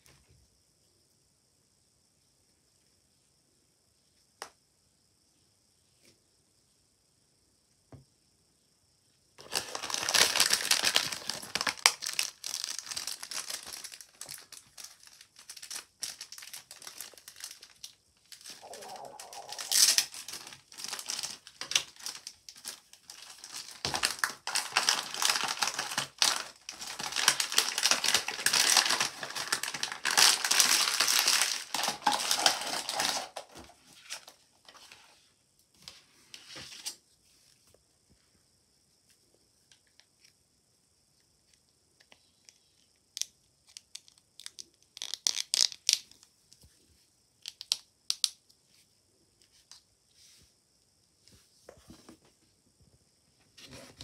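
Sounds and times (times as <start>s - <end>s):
plastic bags crinkling: 9.4s - 34.2s.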